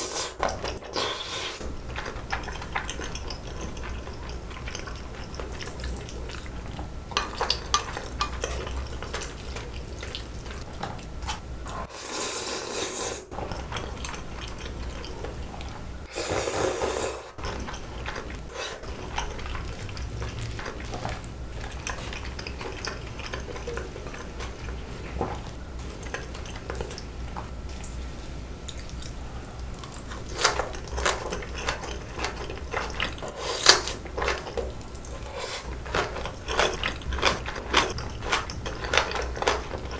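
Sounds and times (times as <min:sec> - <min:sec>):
chewing and wet mouth sounds: 0:00.0 - 0:39.9.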